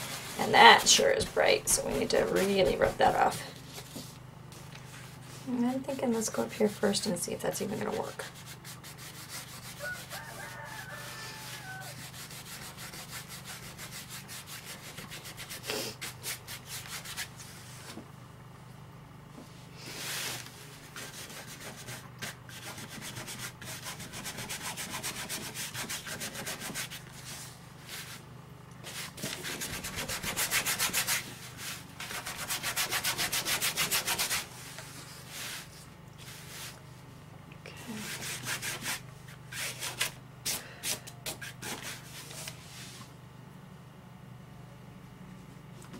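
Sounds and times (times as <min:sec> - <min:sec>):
dry paintbrush scrubbing: 0:00.0 - 0:04.1, 0:04.9 - 0:17.9, 0:19.8 - 0:28.2, 0:28.8 - 0:36.8.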